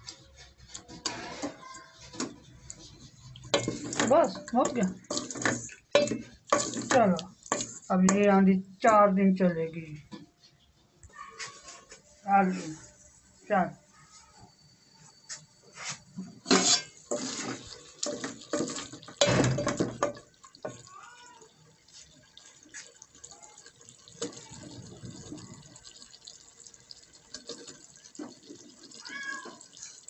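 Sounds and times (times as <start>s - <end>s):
lid and ladle clattering on pot: 3.5s - 8.2s, 16.4s - 20.3s.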